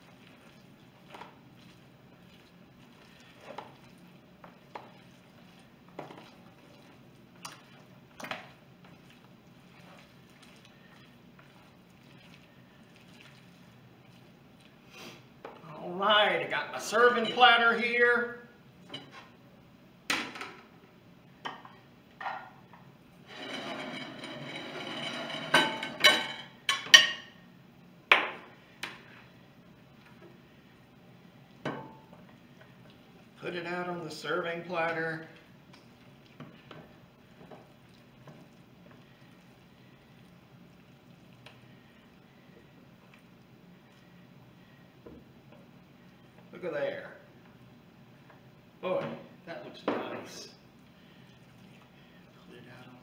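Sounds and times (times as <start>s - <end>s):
wet mixing of salad: 0.0s - 18.0s, 28.5s - 48.8s, 50.4s - 53.0s
platter scraping across table: 23.3s - 25.9s
dishware knocking and clacking: 23.8s - 27.3s.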